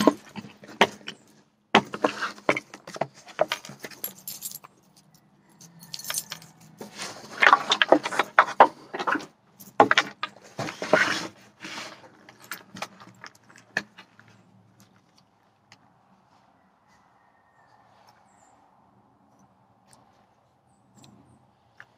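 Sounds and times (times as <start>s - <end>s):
keys jingling: 3.4s - 6.8s.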